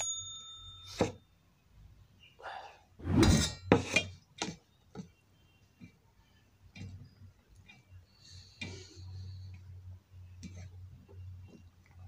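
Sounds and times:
hand mixing food on steel plate: 5.8 - 12.0.

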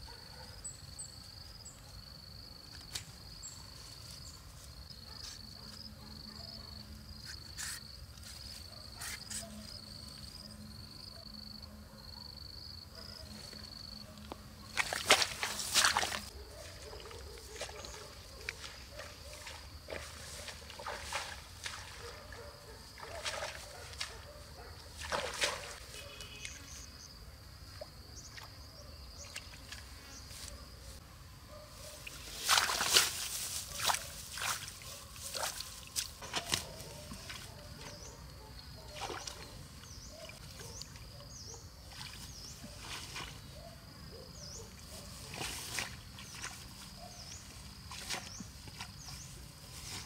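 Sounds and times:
water sloshing and splashing: 14.6 - 24.2, 24.9 - 25.8, 32.2 - 37.9, 38.8 - 41.0
hands rustling wet grass: 14.6 - 24.3, 31.8 - 38.0, 45.0 - 50.0.

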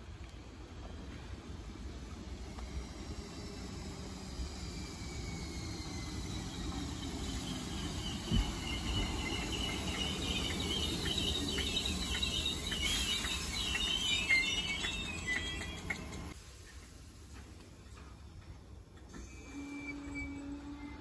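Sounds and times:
electric train whine: 0.0 - 21.0
low train running rumble: 0.0 - 21.0
train brake squeal: 2.6 - 16.4, 19.2 - 21.0.

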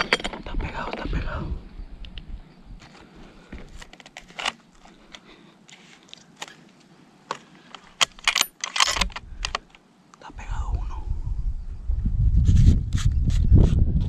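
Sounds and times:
metallic clicks and rattles: 8.0 - 9.8.

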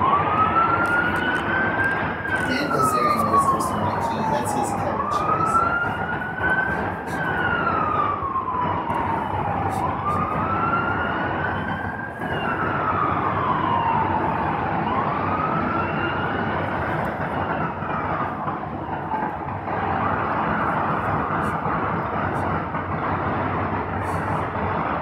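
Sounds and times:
emergency vehicle siren wailing: 0.0 - 25.0
traffic hiss: 8.1 - 14.9, 15.8 - 25.0.

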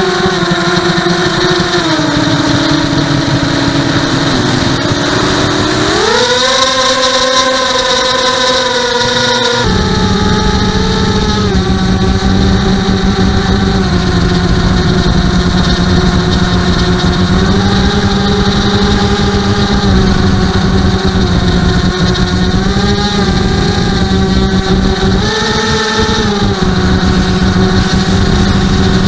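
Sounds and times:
quadcopter motors whining: 0.0 - 29.0.

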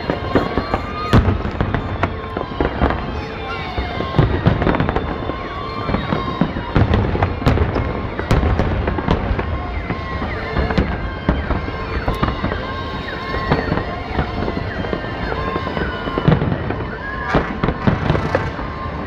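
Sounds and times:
fireworks bursting with bangs: 0.0 - 19.0
fireworks whistling: 0.0 - 19.0.

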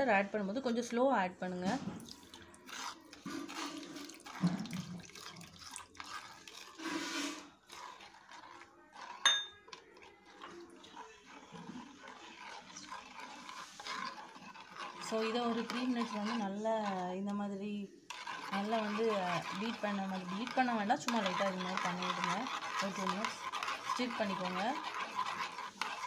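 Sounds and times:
plastic spoon stirring and scraping: 0.0 - 26.0
water pouring into bowl: 2.0 - 7.6.

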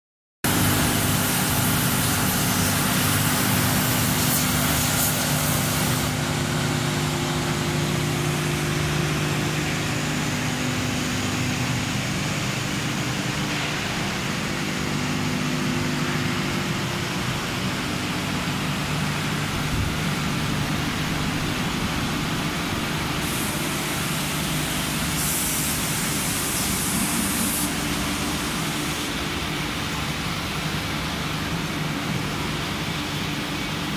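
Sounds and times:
hiss: 0.5 - 6.3, 22.9 - 30.4
machinery hum: 0.5 - 33.9.

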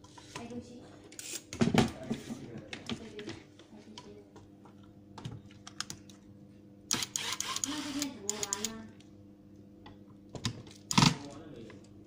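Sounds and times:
screwdriver clicking on plastic: 6.9 - 8.8.

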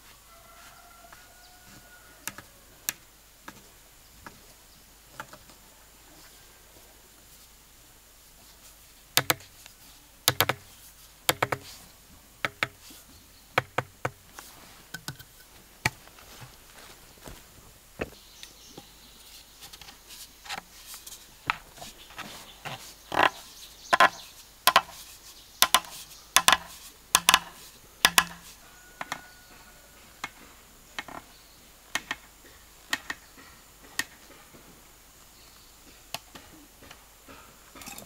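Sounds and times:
sharp knocks from strikes: 25.6 - 28.5.

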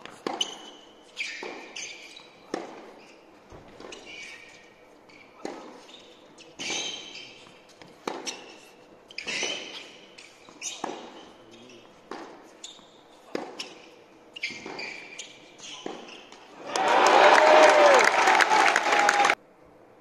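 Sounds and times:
tennis racket strikes: 0.0 - 1.8, 2.5 - 3.0, 7.8 - 8.6
tennis ball bouncing: 0.0 - 4.1, 5.4 - 5.9, 6.6 - 8.5, 9.2 - 11.2, 12.0 - 16.5
shoes squeaking on court: 0.0 - 16.6.

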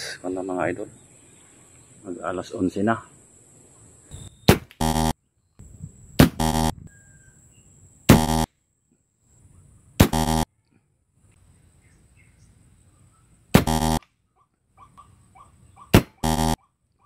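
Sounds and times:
wrong answer buzzer: 4.8 - 5.1, 6.4 - 6.7, 8.1 - 8.5, 10.1 - 10.5, 13.6 - 14.0, 16.2 - 16.6
air rifle firing: 13.6 - 14.0.

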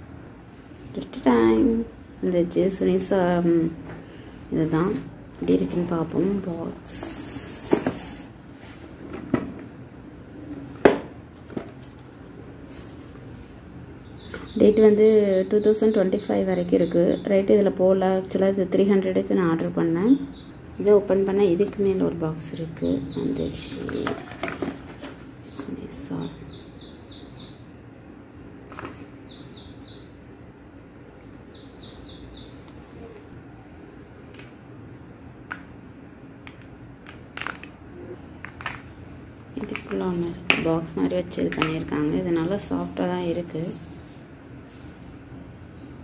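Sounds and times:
low background hum: 0.0 - 46.0
small bird chirping: 14.0 - 17.4, 20.0 - 20.6, 26.4 - 27.6, 29.2 - 30.2, 31.4 - 33.4.

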